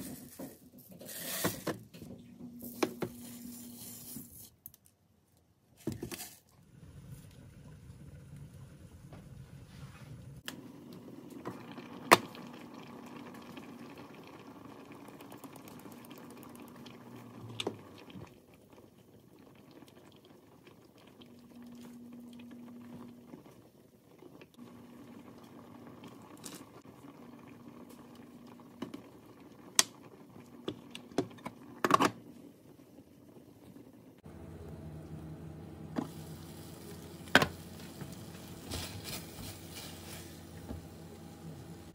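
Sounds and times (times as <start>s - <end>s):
liquid simmering and bubbling: 6.6s - 34.3s.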